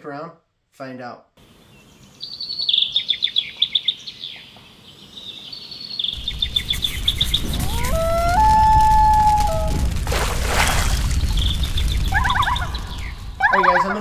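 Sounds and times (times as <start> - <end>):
songbird chirping trills: 1.4 - 8.1
rushing crackling noise: 6.2 - 14.0
loon wailing: 7.5 - 10.0, 13.4 - 14.0.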